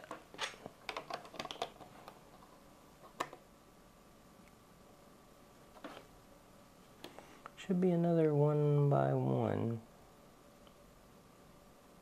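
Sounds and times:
plastic bricks clicking: 0:00.0 - 0:01.9.

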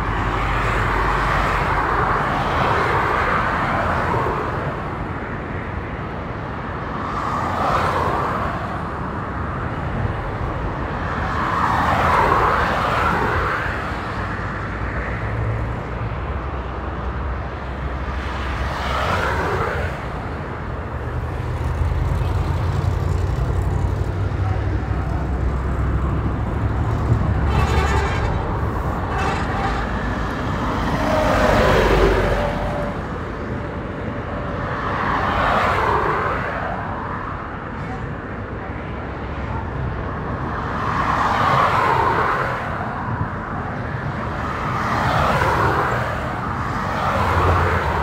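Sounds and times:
vehicles passing: 0:00.0 - 0:48.0
steady low traffic rumble: 0:19.4 - 0:35.3.

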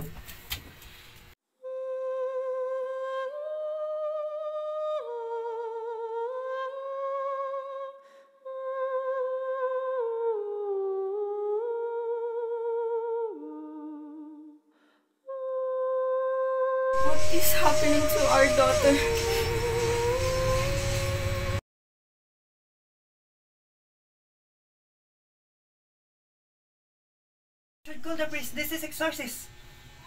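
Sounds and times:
eerie wordless melody: 0:15.3 - 0:21.6.

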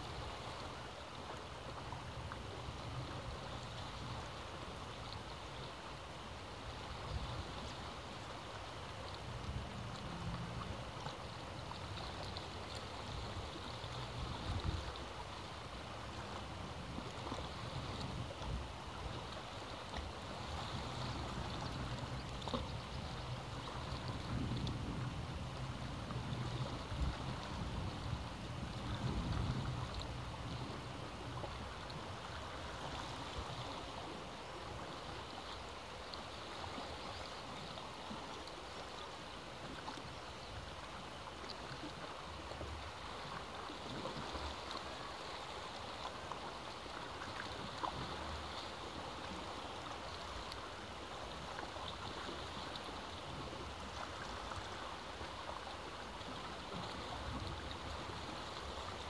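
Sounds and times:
low rumbles of surf: 0:00.0 - 0:59.0.

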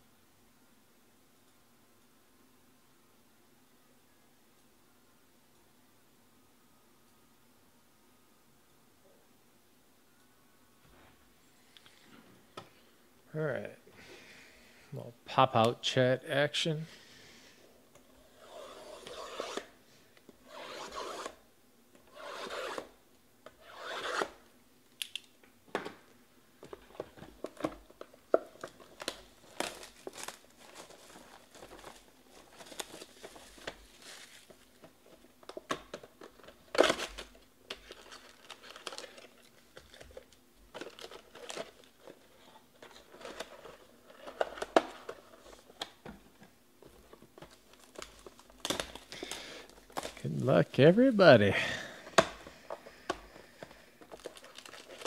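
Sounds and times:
plastic wrap crinkling: 0:26.8 - 0:46.0, 0:46.8 - 0:50.4, 0:52.5 - 0:55.0.

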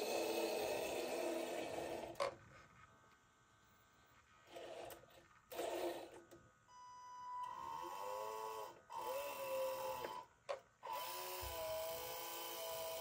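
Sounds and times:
toy truck motor whining: 0:00.0 - 0:02.2, 0:07.4 - 0:13.0.

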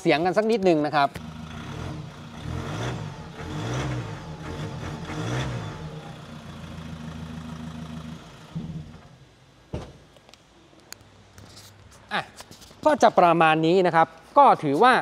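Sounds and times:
diesel engine revving and idling: 0:01.1 - 0:09.2.

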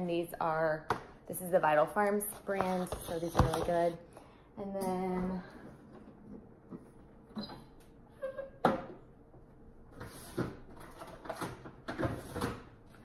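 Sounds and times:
rustling and clatter of food packages: 0:09.9 - 0:13.0.

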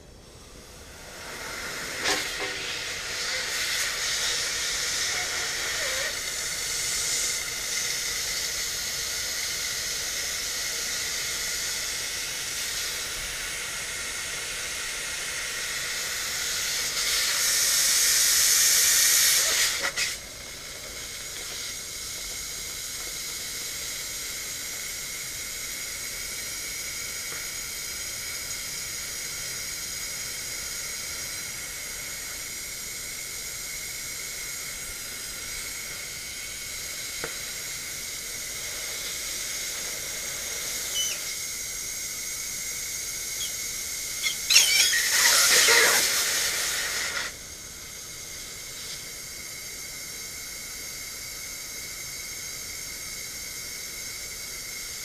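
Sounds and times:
pressurized gas hissing: 0:00.0 - 0:55.0.

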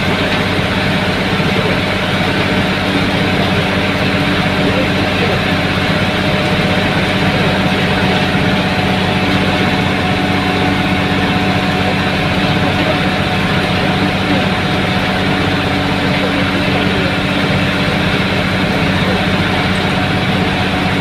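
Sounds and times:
bus engine droning: 0:00.0 - 0:21.0
road and tyre noise: 0:00.0 - 0:21.0.

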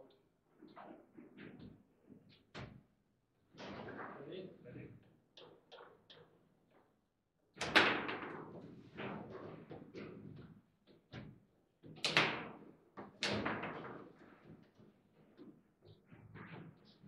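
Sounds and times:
light clacks of ball and rods: 0:05.0 - 0:07.0.

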